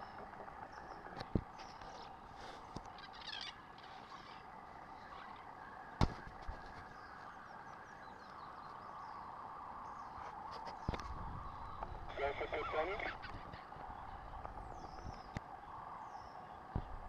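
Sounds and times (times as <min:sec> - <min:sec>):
mongooses twittering chirps: 0:00.0 - 0:05.7, 0:06.9 - 0:15.4
background hiss: 0:00.0 - 0:17.0.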